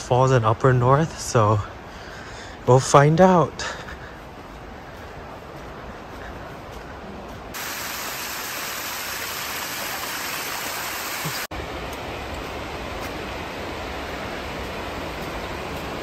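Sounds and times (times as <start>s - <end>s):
waterfall splashing: 7.6s - 16.0s.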